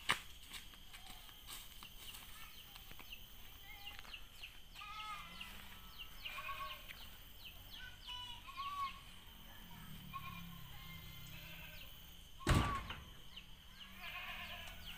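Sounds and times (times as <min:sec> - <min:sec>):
faint animal calls: 0:04.7 - 0:14.9.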